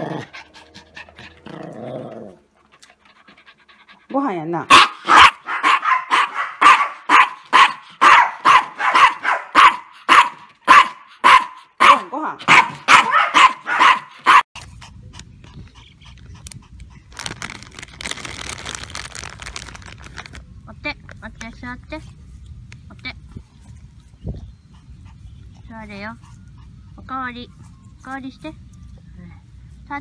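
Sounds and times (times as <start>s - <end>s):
small dog barking rapidly: 4.7s - 14.5s
soft rustle: 16.2s - 20.5s.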